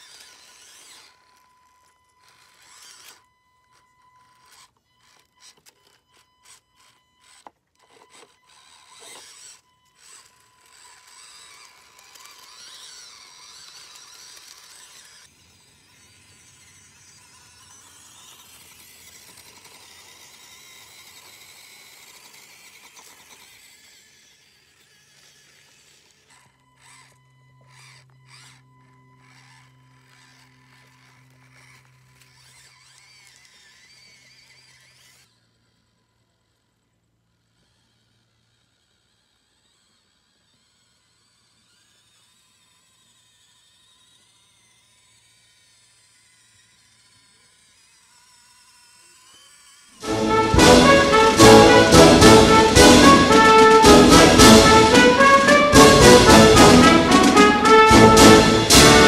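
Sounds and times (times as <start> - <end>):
toy car motor whining: 0.0 - 59.0.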